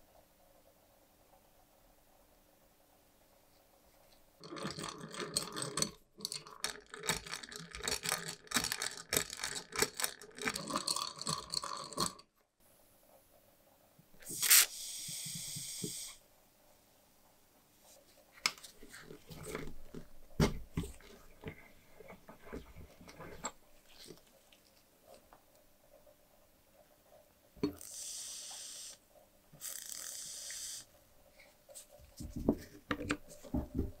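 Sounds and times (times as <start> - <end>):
pencil sharpener rattling: 4.4 - 12.2.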